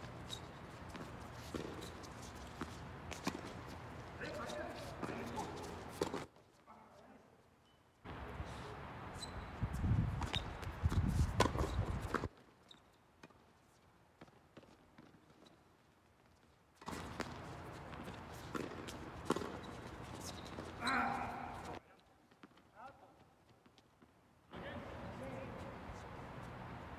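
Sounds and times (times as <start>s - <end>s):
tennis balls struck and bouncing: 10.2s - 12.4s, 16.8s - 21.8s.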